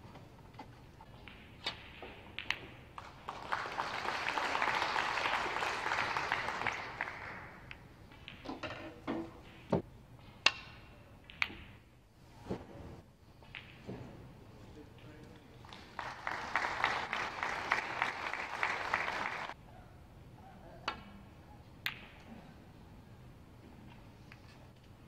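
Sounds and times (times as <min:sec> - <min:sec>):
snooker balls clicking: 0:01.1 - 0:03.1
audience applause: 0:03.0 - 0:07.5, 0:15.6 - 0:19.6.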